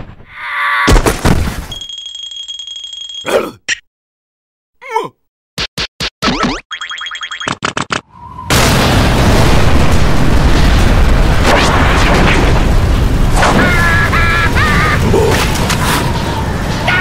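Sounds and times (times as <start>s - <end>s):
storm wind rushing: 8.1s - 17.0s.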